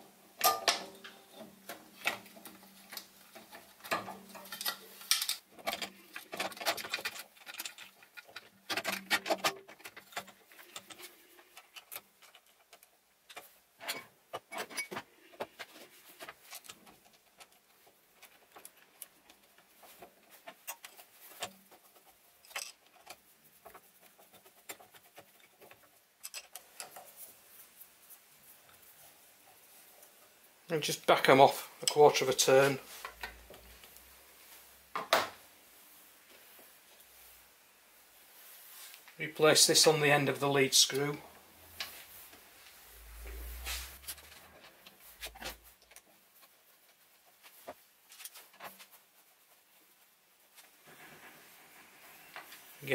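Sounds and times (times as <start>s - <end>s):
metal parts clicking and clattering: 0.4s - 27.2s.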